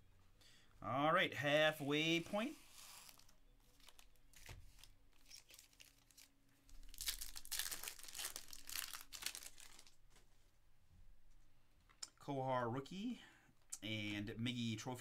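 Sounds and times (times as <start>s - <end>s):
card packs handled: 2.3s - 10.3s
foil wrapper tearing and crinkling: 2.8s - 10.0s.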